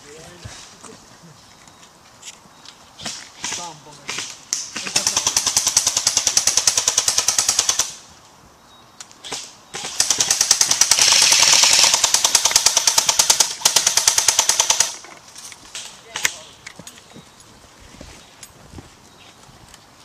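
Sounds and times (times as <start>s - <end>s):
airsoft guns firing full auto: 3.4s - 8.0s, 9.3s - 15.0s.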